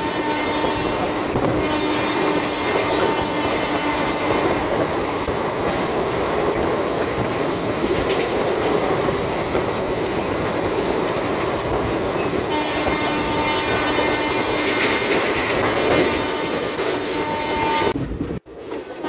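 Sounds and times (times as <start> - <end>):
train horn: 0.0 - 4.7, 12.4 - 18.0
train wheels rumbling on rail: 0.0 - 19.0.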